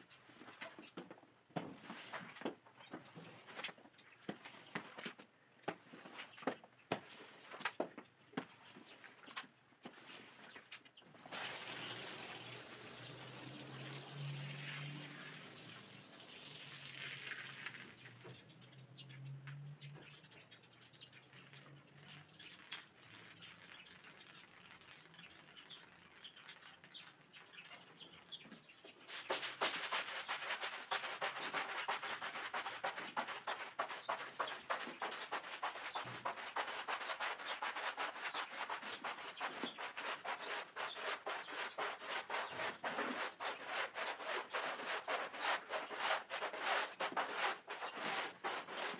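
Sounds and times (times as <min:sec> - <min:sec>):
broom scrubbing wet rug: 0:01.8 - 0:02.4, 0:11.3 - 0:16.2, 0:29.0 - 0:48.9
water spraying on wet rug: 0:11.3 - 0:18.0, 0:22.0 - 0:27.2, 0:29.0 - 0:48.9
faint scrapes: 0:29.0 - 0:48.9.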